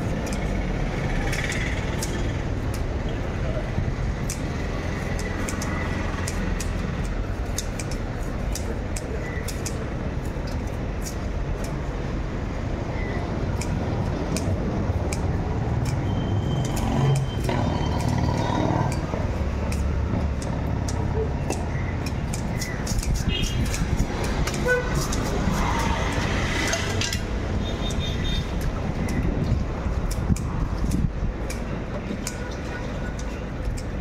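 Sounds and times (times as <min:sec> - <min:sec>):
road traffic rumble: 0:00.0 - 0:34.0
knife scraping fish scales: 0:21.6 - 0:27.0.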